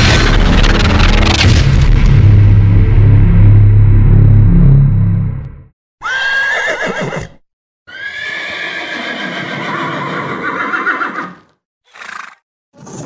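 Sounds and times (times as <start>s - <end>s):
horse whinnying: 6.0s - 13.0s.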